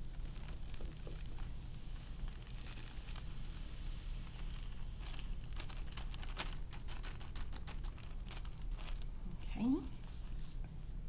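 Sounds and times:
sand pouring into glass: 0:00.0 - 0:07.2
plastic bag crinkling: 0:00.0 - 0:10.4.

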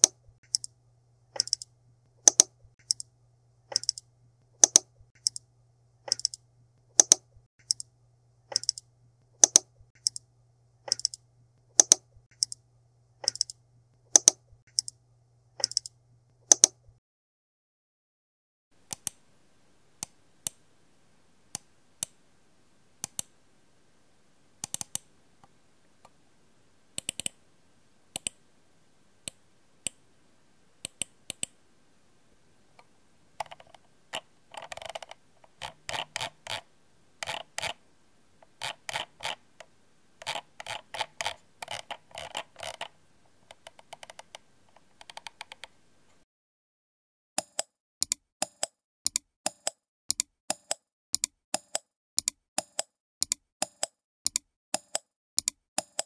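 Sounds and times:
computer mouse clicking: 0:00.0 - 0:00.7, 0:01.3 - 0:03.1, 0:03.7 - 0:07.9, 0:08.5 - 0:12.6, 0:13.2 - 0:15.0, 0:15.6 - 0:16.9, 0:18.9 - 0:19.2, 0:23.0 - 0:23.3, 0:24.6 - 0:25.1, 0:27.0 - 0:27.4, 0:28.1 - 0:28.4, 0:30.8 - 0:31.6, 0:33.4 - 0:37.8, 0:38.4 - 0:46.2, 0:47.4 - 0:56.0.

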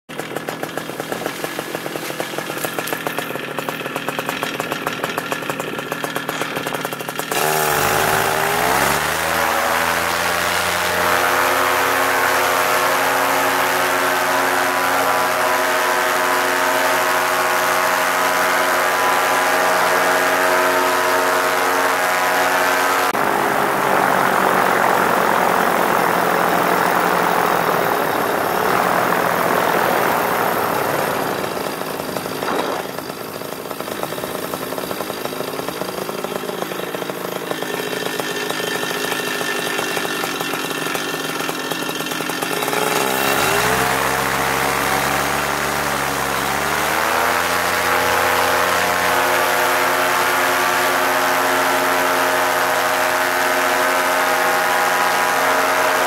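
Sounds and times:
paramotor engine and propeller: 0:00.1 - 0:56.0.

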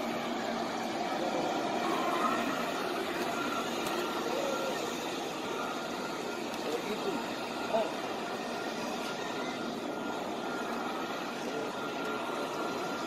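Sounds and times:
crowd murmur: 0:00.0 - 0:13.0.

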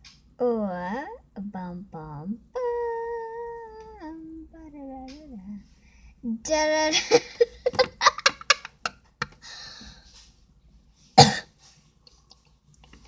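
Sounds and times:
girl coughing: 0:11.2 - 0:11.5.

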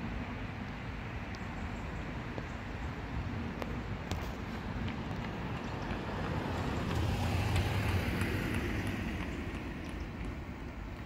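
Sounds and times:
vehicle passing: 0:04.5 - 0:11.0.

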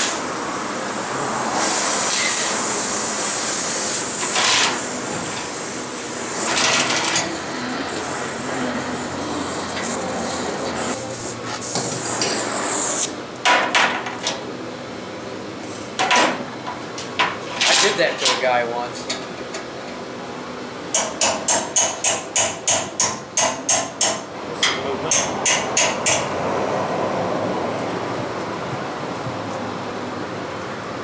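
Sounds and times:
gas torch hissing: 0:00.0 - 0:13.2.

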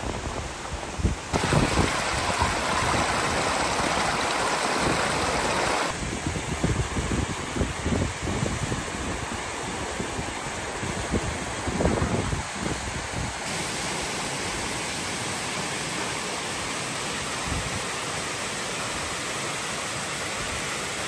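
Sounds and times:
waterfall rushing: 0:01.3 - 0:06.0, 0:13.5 - 0:21.0.

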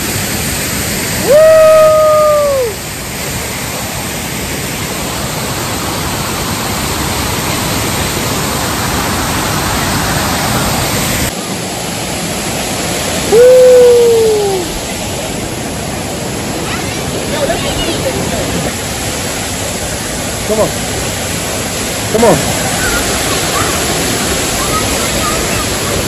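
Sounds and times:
waterfall rushing: 0:00.0 - 0:26.0
person whooping: 0:01.2 - 0:02.8, 0:13.2 - 0:14.8.

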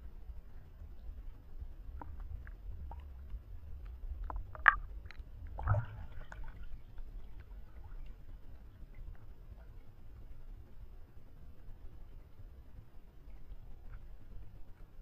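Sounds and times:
water slosh with low thump: 0:01.9 - 0:08.2.

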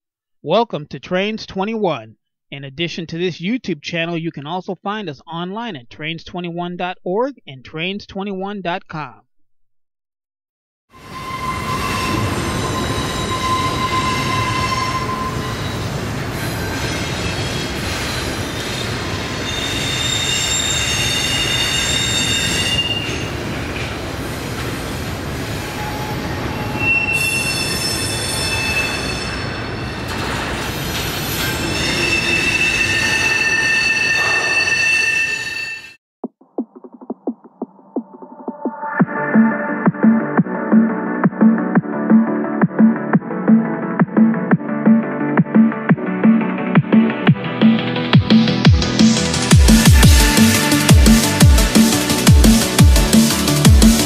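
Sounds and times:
train wheels squealing: 0:11.0 - 0:23.9, 0:25.4 - 0:36.0
low rumble of rolling railcars: 0:11.0 - 0:34.9.

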